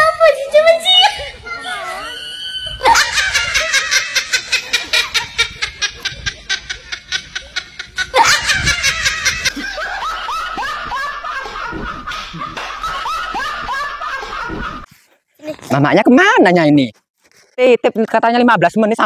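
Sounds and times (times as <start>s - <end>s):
person laughing: 2.6s - 14.9s.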